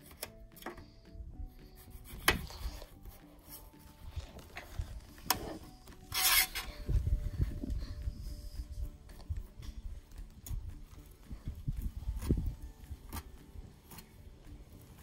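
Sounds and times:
knife scraping on pan: 0:05.3 - 0:06.8.

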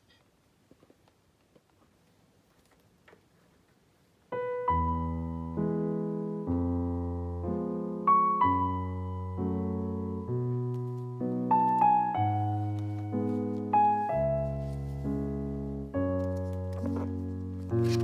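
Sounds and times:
slow solo piano chords: 0:04.3 - 0:18.0.

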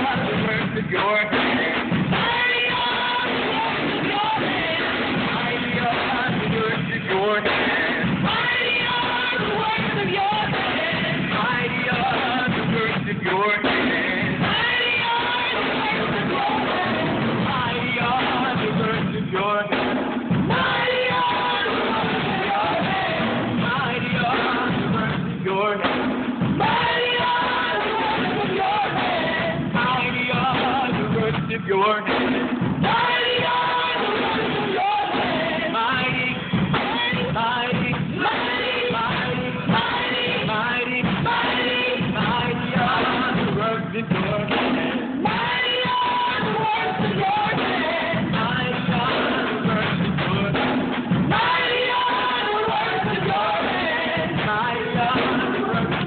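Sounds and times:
live worship music with singing: 0:00.0 - 0:56.0.

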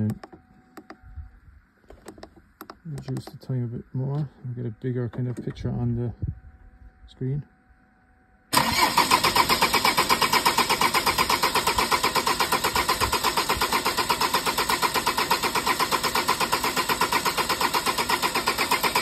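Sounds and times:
engine cranking without starting: 0:08.5 - 0:19.0.

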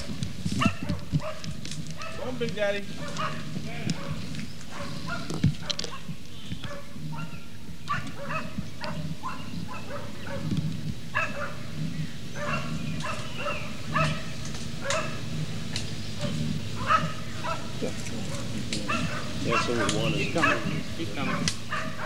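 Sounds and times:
dog barking and yipping: 0:00.0 - 0:15.4, 0:16.2 - 0:22.0.

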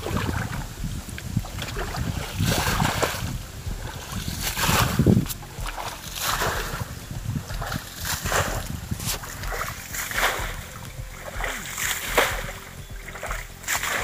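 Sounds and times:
muddy water splashing: 0:00.0 - 0:14.0.

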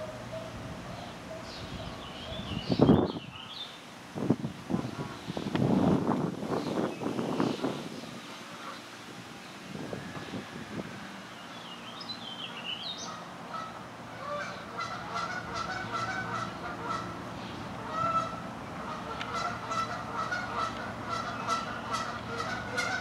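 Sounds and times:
geese honking: 0:07.4 - 0:09.0, 0:12.4 - 0:23.0.

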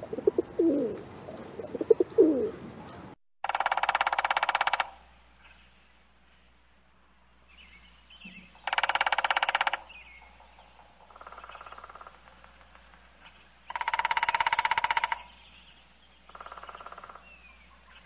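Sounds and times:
woodpecker drumming: 0:03.4 - 0:05.1, 0:08.2 - 0:15.6, 0:16.2 - 0:17.5
faint bird chirps: 0:07.5 - 0:18.0.

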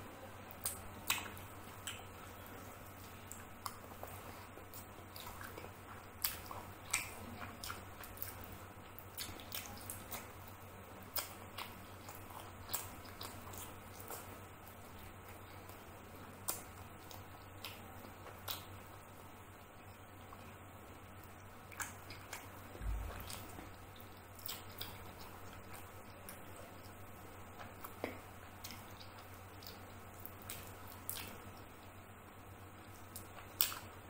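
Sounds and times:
wet chewing mouth clicks: 0:00.5 - 0:02.1, 0:03.3 - 0:10.4, 0:11.1 - 0:15.8, 0:21.2 - 0:27.0, 0:27.6 - 0:31.7, 0:33.1 - 0:33.9.

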